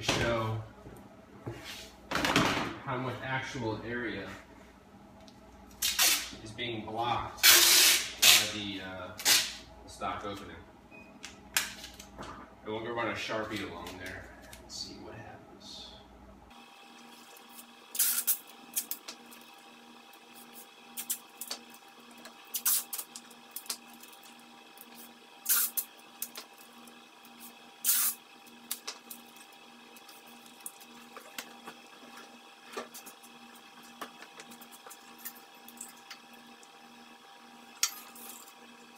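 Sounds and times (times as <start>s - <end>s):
faint steady hum: 0.0s - 38.9s
masking tape ripping off roll: 25.4s - 25.8s.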